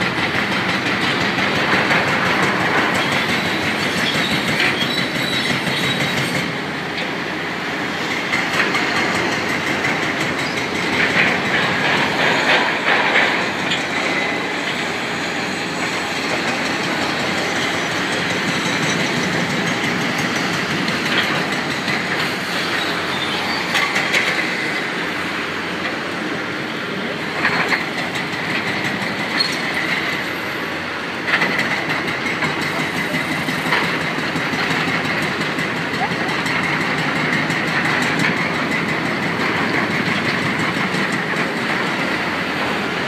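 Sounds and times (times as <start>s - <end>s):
demolition machinery din: 0.0s - 7.3s, 8.0s - 29.9s
passing street traffic: 0.0s - 43.0s
high squeals: 22.5s - 24.0s.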